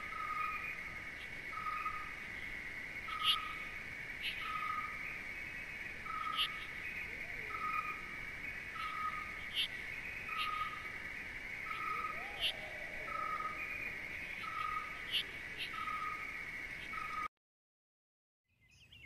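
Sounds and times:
insect chorus: 0.0 - 17.3
hooting call: 11.6 - 16.2.

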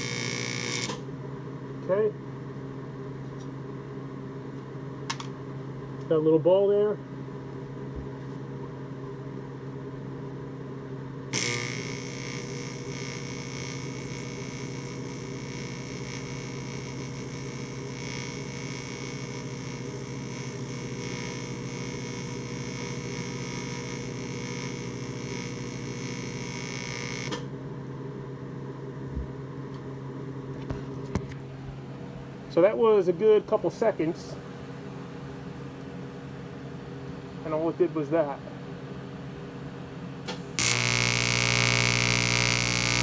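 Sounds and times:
welding arc buzzing hiss: 0.0 - 1.1, 11.3 - 27.6, 40.3 - 43.0
steady hum: 0.0 - 43.0.

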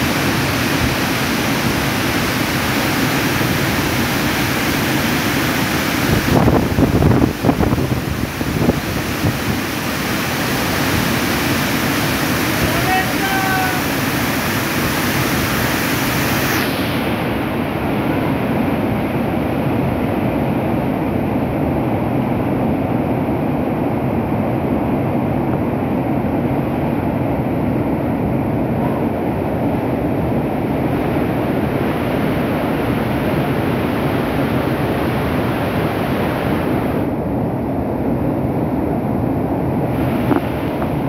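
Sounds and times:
stream rushing over boulders: 0.0 - 20.9, 28.6 - 37.2, 39.5 - 41.0.

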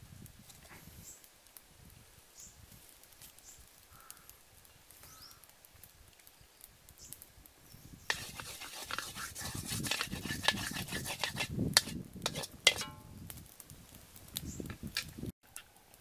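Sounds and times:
spoon stirring liquid in wok: 8.1 - 13.0
spoon knocking against pan: 11.8 - 13.0.

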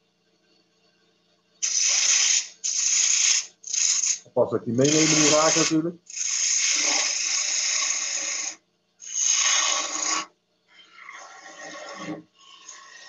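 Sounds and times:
lathe gouge hissing through wood: 1.6 - 10.3.

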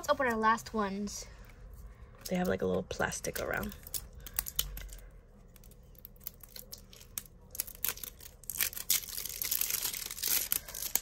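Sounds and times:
plastic wrap crinkling: 3.2 - 11.0.

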